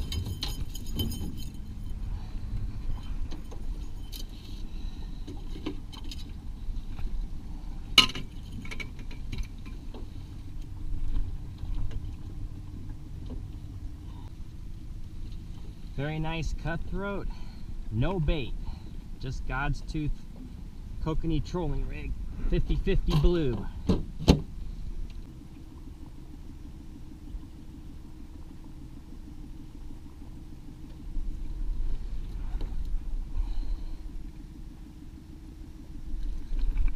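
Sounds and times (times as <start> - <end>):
boat motor hum: 0.0 - 36.9.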